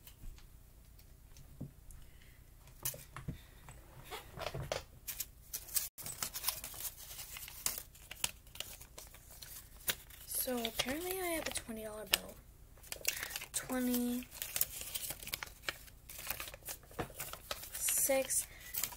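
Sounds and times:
banknotes rustling and crinkling: 5.1s - 18.9s.

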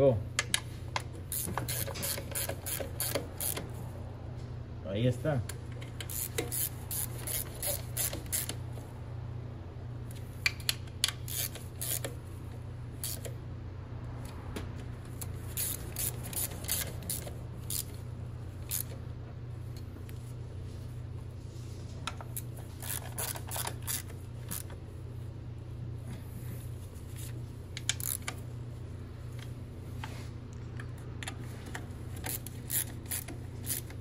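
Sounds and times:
hand ratchet clicking: 0.4s - 3.7s, 5.8s - 8.6s, 10.4s - 12.2s, 13.0s - 13.3s, 15.2s - 18.0s, 18.6s - 19.0s, 22.8s - 24.7s, 27.8s - 28.4s, 31.7s - 34.0s.

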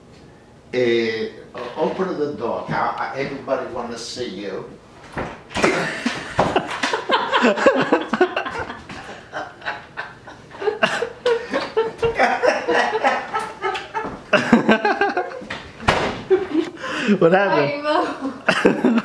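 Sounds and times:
people laughing: 5.6s - 15.6s, 16.2s - 19.0s.

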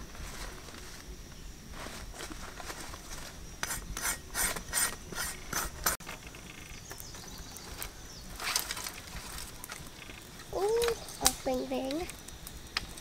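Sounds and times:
dry sticks rustling: 0.0s - 13.0s
hands rustling leafy greens: 10.6s - 12.1s.

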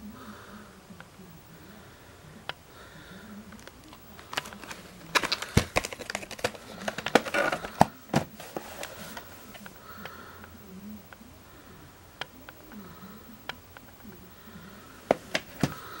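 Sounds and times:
plastic case clicks and snaps: 3.5s - 9.7s, 15.1s - 15.9s.

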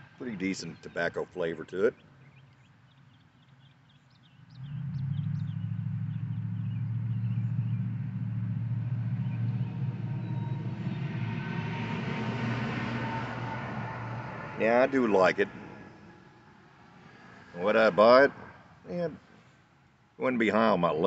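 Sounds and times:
steady low rumble: 3.8s - 18.9s.

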